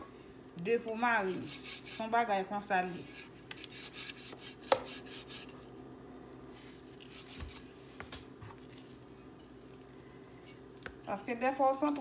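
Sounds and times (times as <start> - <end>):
knife cutting raw chicken: 3.5 - 5.5.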